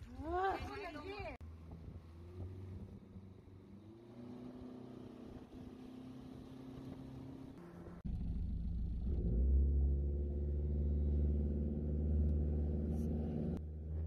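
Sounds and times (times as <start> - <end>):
deep steady rumble: 8.0 - 14.0.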